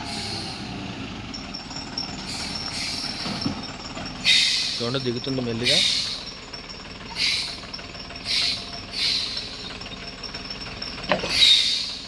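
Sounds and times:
air brakes hissing: 0.0s - 1.0s, 2.1s - 4.9s, 7.1s - 9.7s, 11.2s - 12.0s
low engine rumble: 0.0s - 12.0s.

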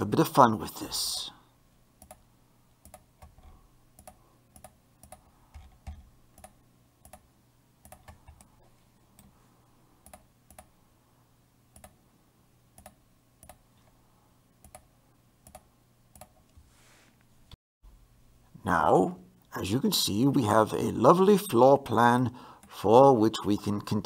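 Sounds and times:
low steady hum: 0.0s - 24.0s
computer mouse clicking: 2.0s - 2.2s, 2.8s - 8.5s, 10.0s - 10.7s, 11.8s - 12.0s, 12.8s - 13.6s, 14.6s - 16.4s.

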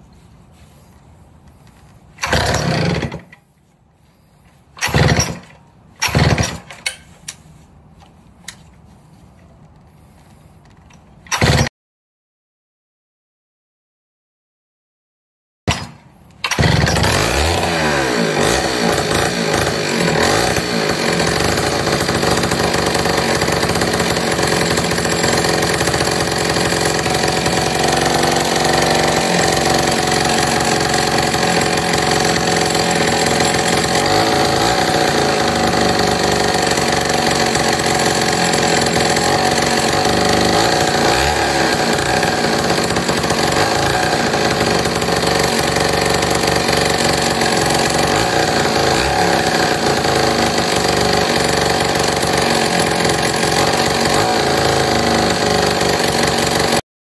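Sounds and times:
chainsaw engine revving: 2.2s - 3.3s, 4.2s - 6.8s, 11.3s - 11.7s, 15.7s - 56.8s.

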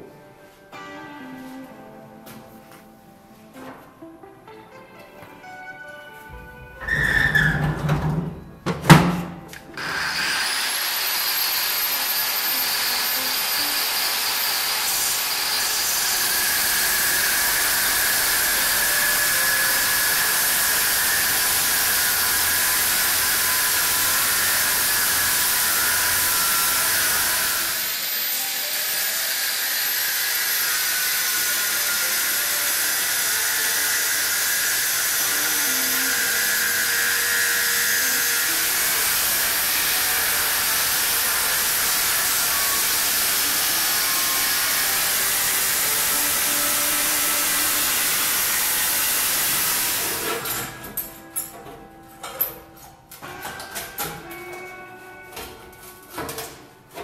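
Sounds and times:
angle grinder grinding metal: 9.8s - 51.6s.

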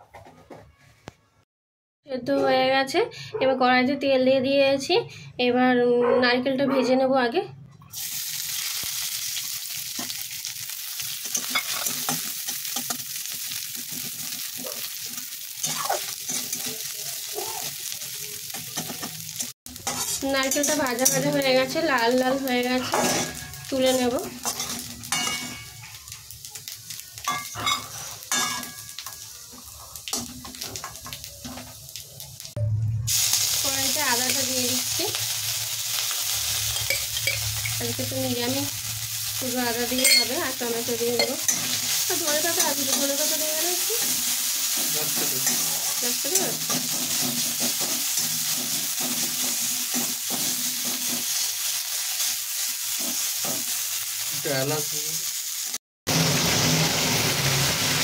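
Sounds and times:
food sizzling in hot oil: 7.9s - 58.0s
spatula scraping pan: 19.8s - 21.7s, 22.7s - 25.8s.

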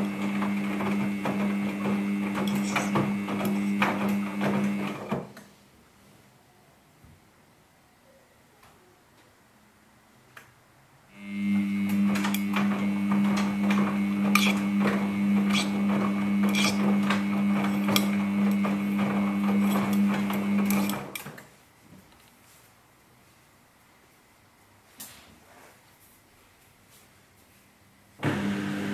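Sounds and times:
washing machine motor hum: 0.0s - 5.3s, 11.2s - 21.2s, 28.2s - 28.9s.

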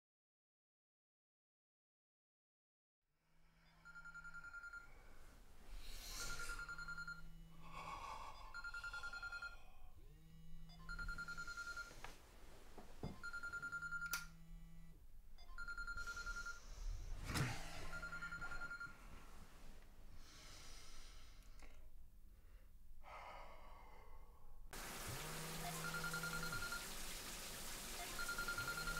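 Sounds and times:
mobile phone ringing: 3.6s - 5.2s, 6.1s - 7.6s, 8.4s - 9.9s, 10.6s - 12.1s, 13.1s - 14.5s, 15.4s - 16.8s, 17.8s - 19.1s, 25.2s - 27.0s, 28.0s - 28.9s.

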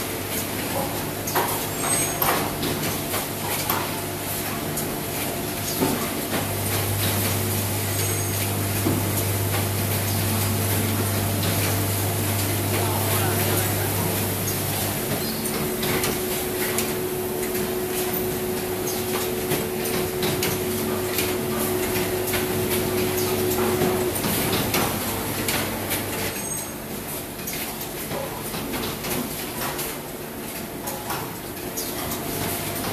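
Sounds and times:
machine clacks and knocks: 0.4s - 7.4s, 8.0s - 26.6s, 27.4s - 32.9s
machine hum: 4.2s - 27.2s.

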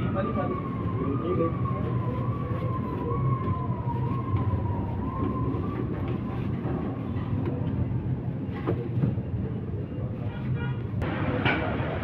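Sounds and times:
traffic engine rumble: 0.0s - 12.0s.

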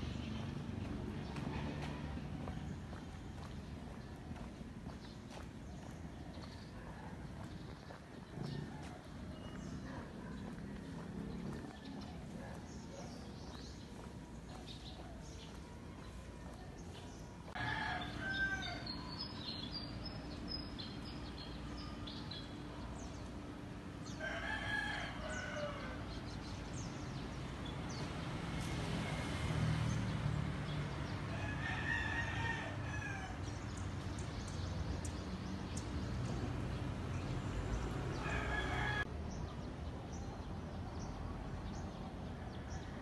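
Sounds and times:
rooster crowing: 17.6s - 19.0s, 24.2s - 26.0s, 31.3s - 33.4s, 38.1s - 39.1s.

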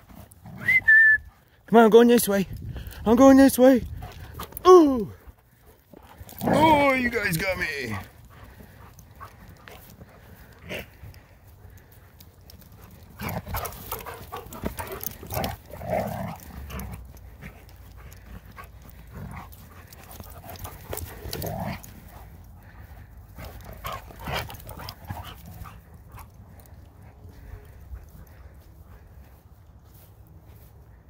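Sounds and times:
dogs scuffling: 5.5s - 30.2s
dogs vocalizing: 8.0s - 28.6s.

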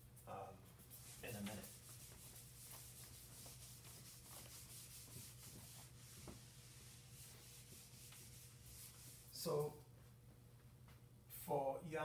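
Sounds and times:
eraser swishing on whiteboard: 0.7s - 9.7s.

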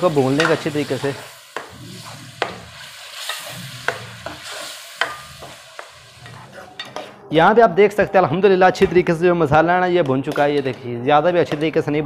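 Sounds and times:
masala sizzling in oil: 0.0s - 6.8s
metal ladle scraping a pan: 0.1s - 7.2s.

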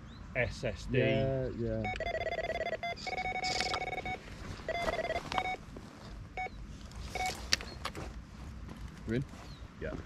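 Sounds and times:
bite alarm beeps: 1.8s - 5.6s, 6.4s - 7.4s.

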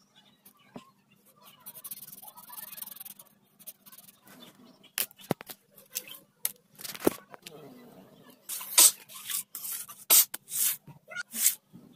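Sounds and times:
marker scratching on paper: 1.4s - 4.5s, 8.5s - 11.6s.

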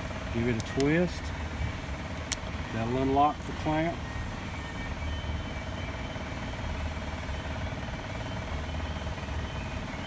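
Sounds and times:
machinery humming: 0.0s - 10.0s
faint steady tone: 2.6s - 10.0s.

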